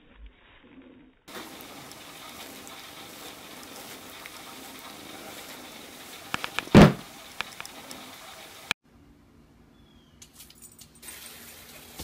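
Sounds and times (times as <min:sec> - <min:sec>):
small clicks: 0:06.4 - 0:06.7
short loud thump: 0:06.6 - 0:07.0.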